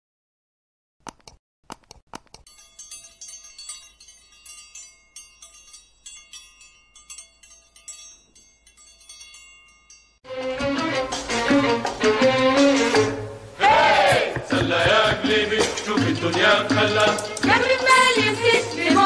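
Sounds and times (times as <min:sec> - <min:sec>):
music with bowed fiddle: 0:10.3 - 0:15.0.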